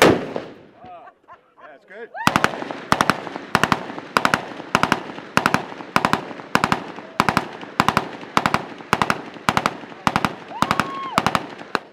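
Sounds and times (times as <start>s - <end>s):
automatic gunfire bursts: 0.0s - 0.6s, 2.3s - 11.9s.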